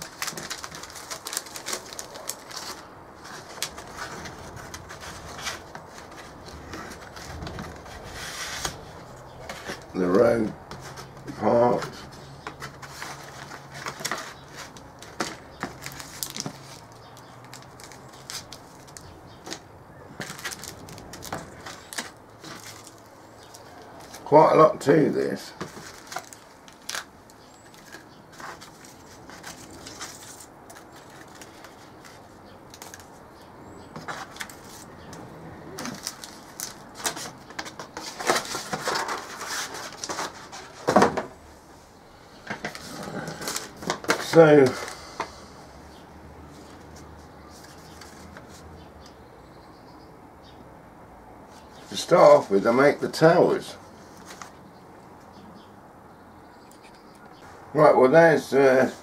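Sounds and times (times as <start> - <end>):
plastic bags crinkling: 0.0 - 7.9, 12.9 - 24.4, 25.6 - 33.2, 35.7 - 41.0.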